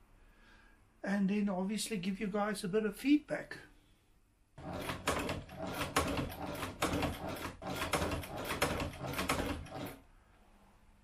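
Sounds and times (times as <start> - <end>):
sewing machine clattering: 4.6 - 10.0.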